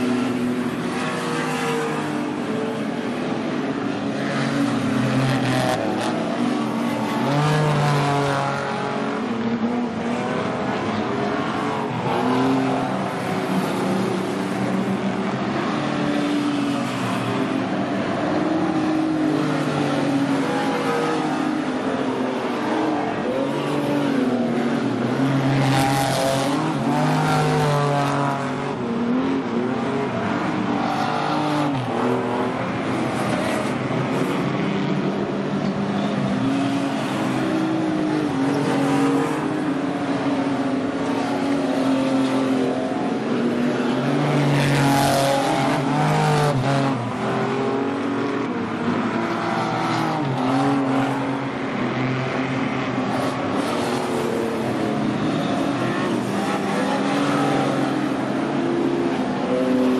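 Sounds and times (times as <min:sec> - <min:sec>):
race car engines revving: 0:00.0 - 0:59.9.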